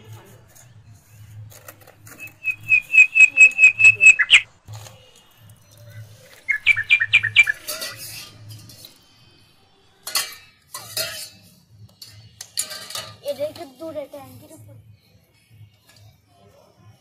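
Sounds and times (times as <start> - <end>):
bird chirping: 2.2 - 4.4, 6.2 - 7.8
kitchen utensils clattering: 7.3 - 9.0, 10.0 - 13.7.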